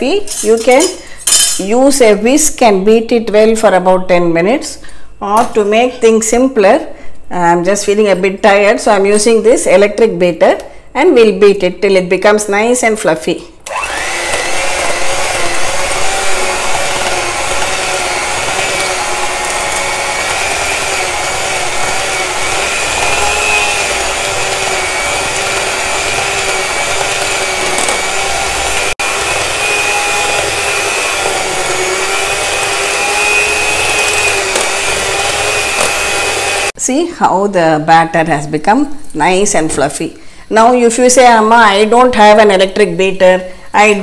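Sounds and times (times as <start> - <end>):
beaters whipping batter in bowl: 13.7 - 36.7
electric hand mixer whining: 13.7 - 36.8.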